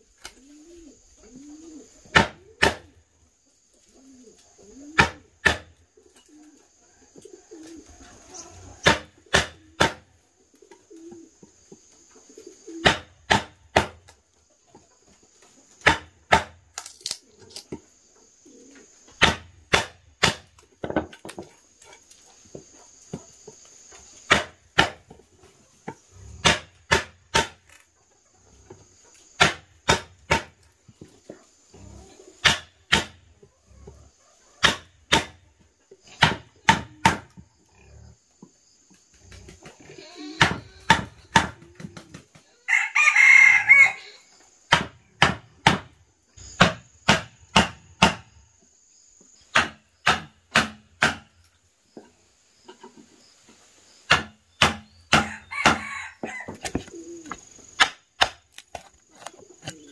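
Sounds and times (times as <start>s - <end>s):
sharp knocks with dull thuds: 2.1s - 2.8s, 8.8s - 10.1s, 12.8s - 14.1s, 15.8s - 16.6s, 19.2s - 21.6s, 24.3s - 25.2s, 26.4s - 27.7s, 29.4s - 31.1s, 32.4s - 33.2s, 34.6s - 35.4s, 36.1s - 37.5s, 40.4s - 42.2s, 44.7s - 48.3s, 49.5s - 51.3s, 54.1s - 58.9s.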